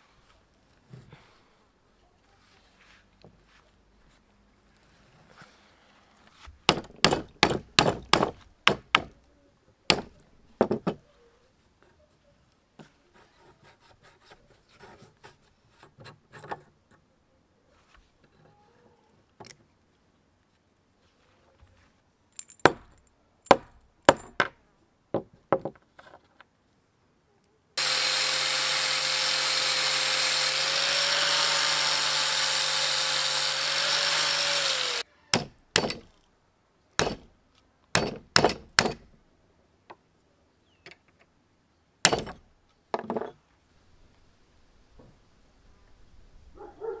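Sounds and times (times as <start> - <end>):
angle grinder grinding: 27.8 - 35.0
hammer striking a punch: 35.4 - 36.1, 37.0 - 37.3, 38.0 - 39.1, 42.1 - 42.4.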